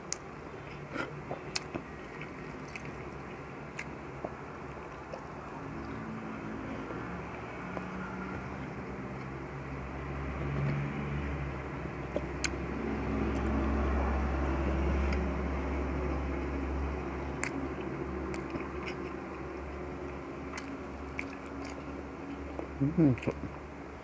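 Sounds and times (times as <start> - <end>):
chewing with mouth clicks: 0.1 - 6.1, 12.1 - 13.6, 14.9 - 15.3, 17.3 - 23.6
low motor drone: 1.2 - 24.0.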